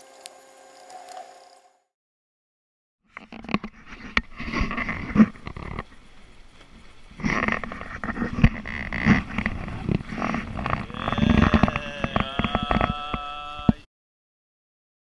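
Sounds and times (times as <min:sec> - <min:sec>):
multi-tone hum with rapid clicks: 0:03.5 - 0:13.9
brief voices: 0:10.8 - 0:13.9.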